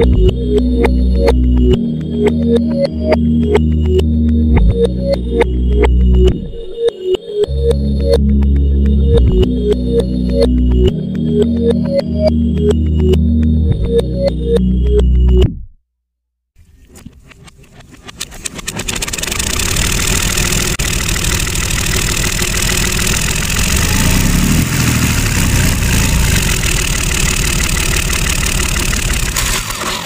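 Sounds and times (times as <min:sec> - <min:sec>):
tractor engine running: 0:17.1 - 0:30.0.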